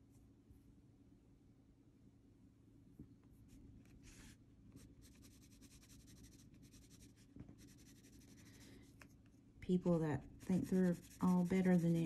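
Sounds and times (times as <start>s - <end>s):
pencil scratching on paper: 4.0s - 8.7s, 10.3s - 12.0s.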